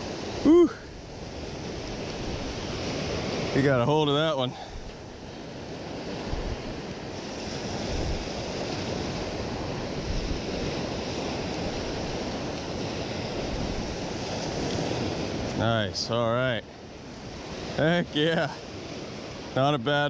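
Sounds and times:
wind buffeting microphone: 0.0s - 15.7s
surf breaking on beach: 0.0s - 20.0s.

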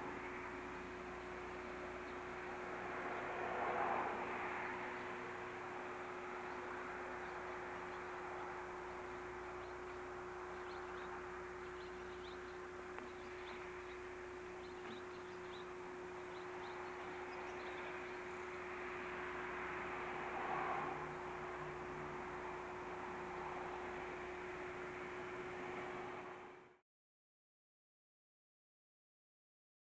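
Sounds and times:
small birds chirping: 0.1s - 2.6s, 4.8s - 19.5s.

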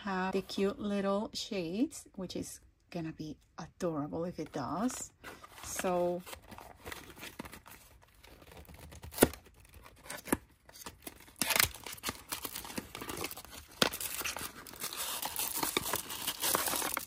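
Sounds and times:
packaging crinkling: 5.5s - 17.0s
packaging tearing: 6.3s - 17.0s.

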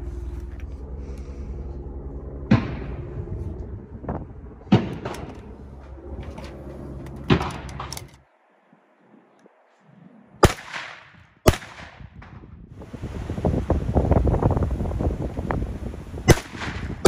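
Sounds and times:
steady hum: 0.0s - 17.0s
shotgun shots: 10.4s - 12.1s, 16.3s - 17.0s.

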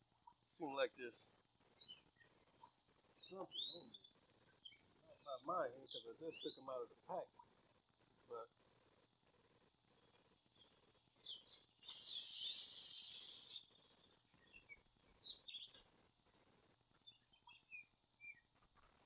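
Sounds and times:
faint bird chirps: 0.0s - 7.6s, 9.9s - 15.9s, 16.9s - 19.0s
short burst of hiss: 11.8s - 13.7s.

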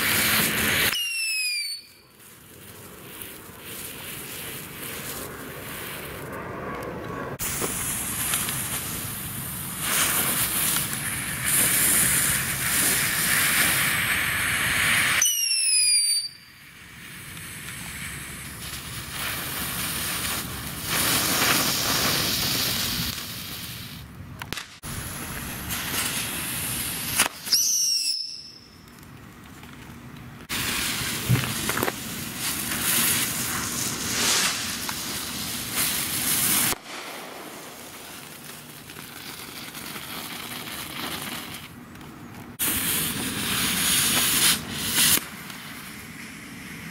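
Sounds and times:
fireworks hissing sparks: 0.0s - 6.4s, 7.4s - 29.0s, 30.4s - 46.9s
high whistle falling in pitch: 15.2s - 16.5s.

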